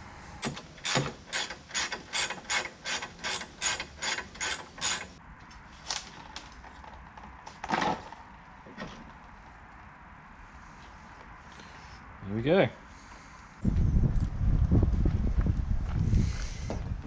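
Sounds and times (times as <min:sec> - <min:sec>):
hand ratchet clicking: 0:00.4 - 0:05.2.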